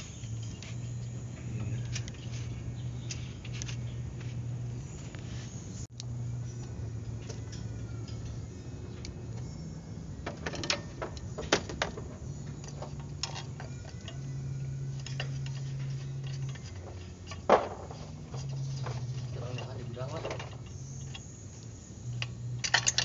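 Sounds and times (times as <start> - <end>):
low steady hum: 0.0 - 23.0
metal tools clinking: 6.4 - 23.0.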